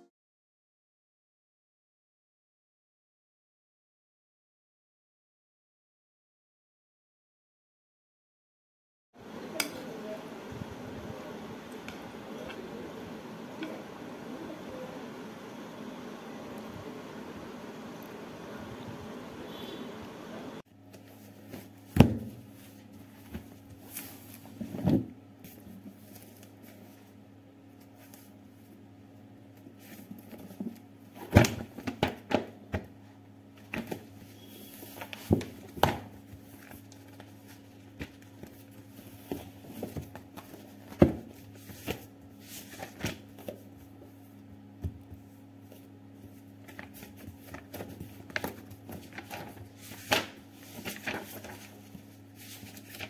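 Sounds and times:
faint steady hum: 9.2 - 53.0
book pages flipping: 20.9 - 28.4, 33.6 - 44.4, 45.1 - 53.0.

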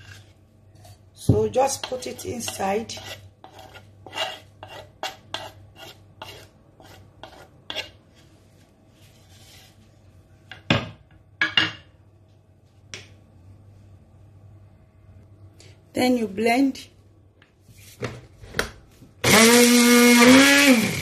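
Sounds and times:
metal utensil scraping wooden board: 1.8 - 8.0.

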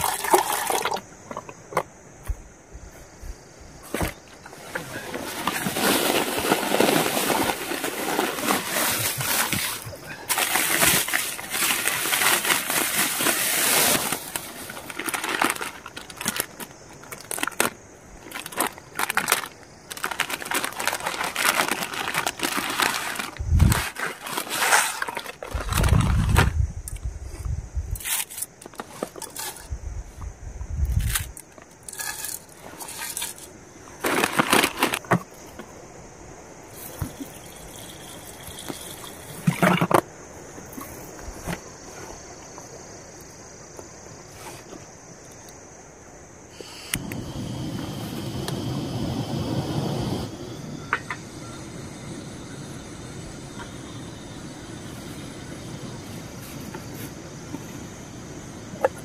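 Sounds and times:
water pouring into a pot: 0.0 - 1.0
plastic packet crinkling: 14.8 - 25.9.

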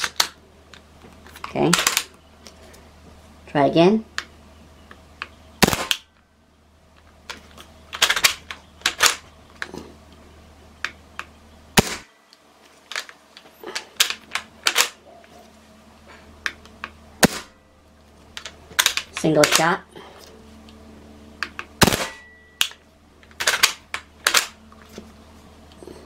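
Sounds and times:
air rifle shots: 5.6 - 6.0, 11.8 - 12.1, 17.2 - 17.6, 21.8 - 22.2
rifle clicks: 21.5 - 24.6.

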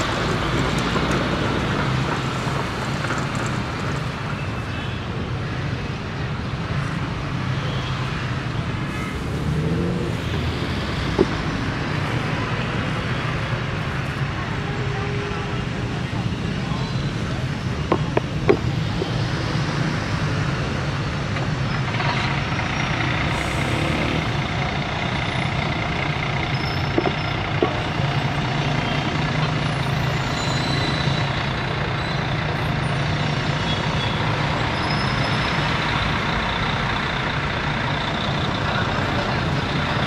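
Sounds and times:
vehicle engines humming: 0.0 - 40.0.

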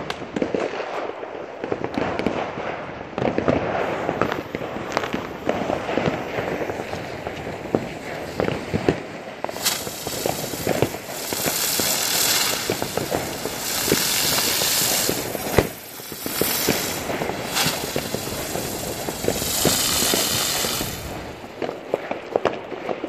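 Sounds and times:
firework spinner hissing: 4.0 - 21.8
small crackles: 6.0 - 22.1
sharp pop: 9.5 - 11.6.

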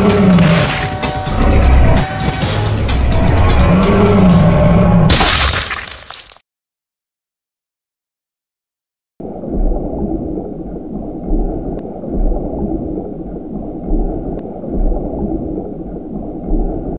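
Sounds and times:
low underwater rumble: 9.2 - 16.9.

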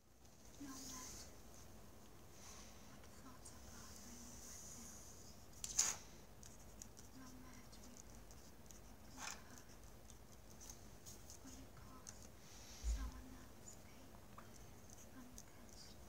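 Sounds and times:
pen scratching on paper: 5.6 - 12.2.

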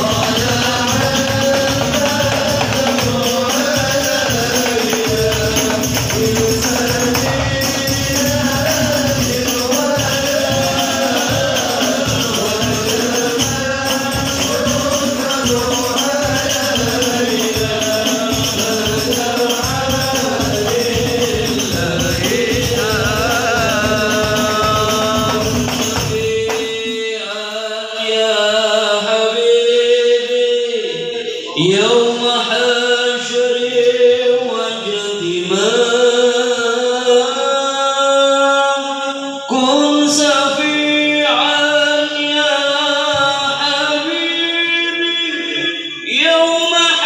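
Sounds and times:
frame drums beating: 0.0 - 27.1
men singing in unison: 0.0 - 47.0.

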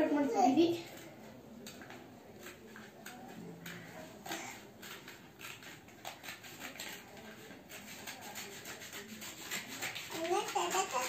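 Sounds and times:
blade cutting paper: 2.4 - 11.0.

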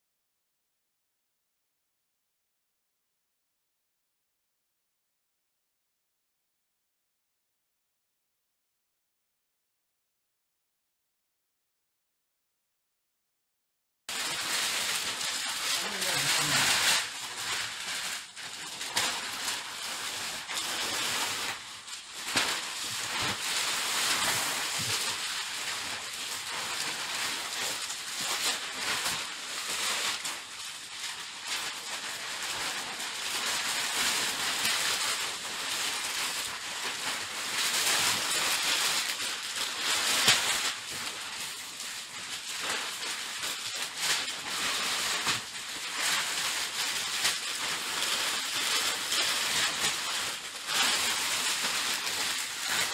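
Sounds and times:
plastic bags rustling: 14.1 - 52.9.

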